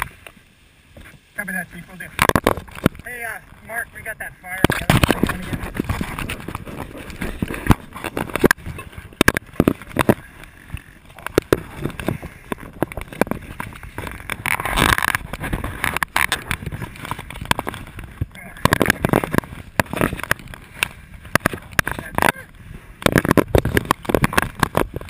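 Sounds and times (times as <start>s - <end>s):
gear scraping against camera: 1.0s - 25.0s.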